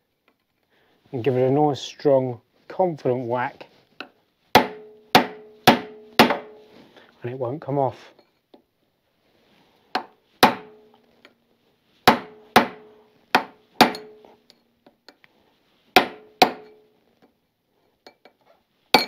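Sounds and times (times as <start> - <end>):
hammer striking a chisel on metal: 4.6 - 6.6, 10.0 - 10.8, 12.1 - 14.6, 16.0 - 16.8
sharp metal blows with ringing: 13.8 - 14.3.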